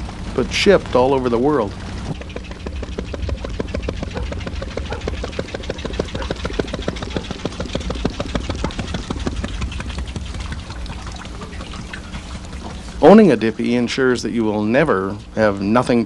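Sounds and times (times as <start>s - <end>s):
boat engine putt-putt: 0.0s - 15.8s.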